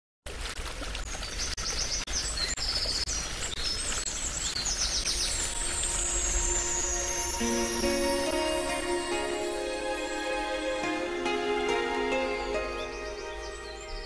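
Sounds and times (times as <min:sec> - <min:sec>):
birds chirping trills: 0:01.2 - 0:14.0
music with falling sweep: 0:05.1 - 0:14.0.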